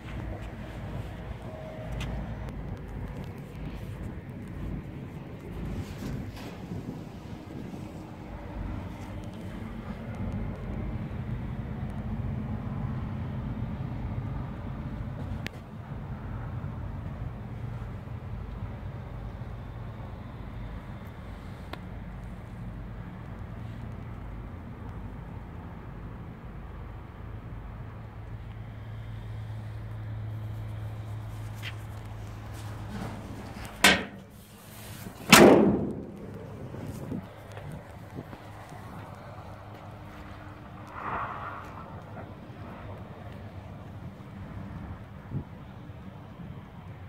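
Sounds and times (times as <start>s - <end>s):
truck engine idling: 28.1s - 45.2s
sharp thump: 32.8s - 34.4s, 35.2s - 36.5s
truck hood slamming shut: 32.9s - 34.3s, 35.2s - 36.4s.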